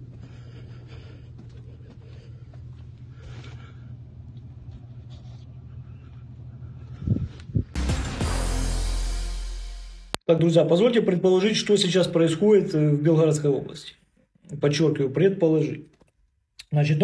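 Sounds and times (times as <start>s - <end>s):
music: 7.7s - 10.2s.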